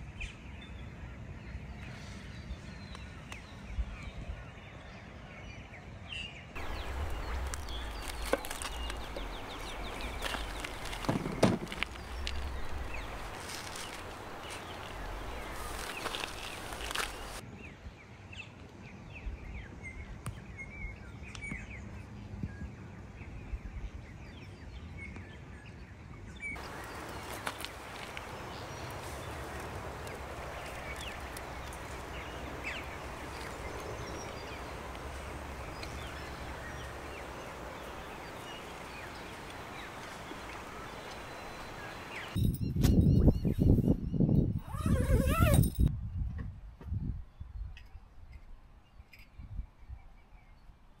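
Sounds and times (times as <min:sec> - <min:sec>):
bird chirps and calls: 0:06.6 - 0:17.4
steady background hiss: 0:06.6 - 0:17.4, 0:26.6 - 0:42.4.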